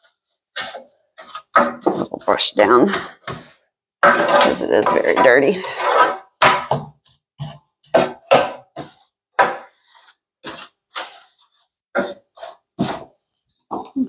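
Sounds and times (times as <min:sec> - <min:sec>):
hand brush sweeping: 0:08.8 - 0:13.1.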